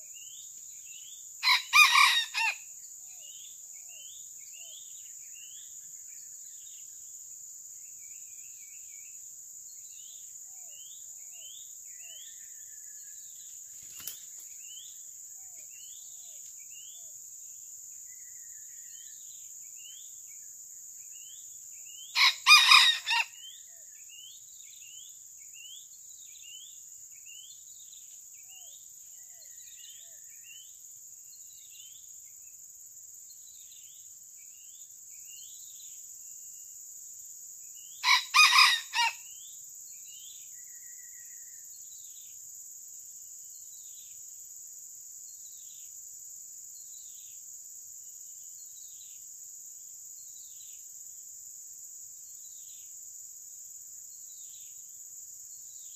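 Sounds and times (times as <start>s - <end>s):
rooster crowing: 1.4s - 2.6s, 22.2s - 23.4s, 38.0s - 39.2s
high-pitched insect drone: 22.1s - 24.5s, 37.8s - 42.3s.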